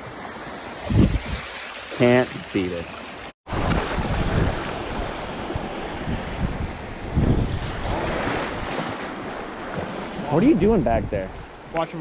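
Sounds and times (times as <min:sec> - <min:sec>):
wind buffeting microphone: 0:00.8 - 0:01.5, 0:03.5 - 0:11.7.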